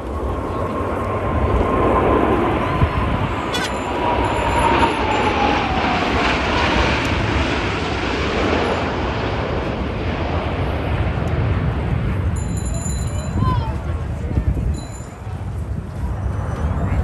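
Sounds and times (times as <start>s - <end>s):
jet roar passing overhead: 0.0s - 12.4s.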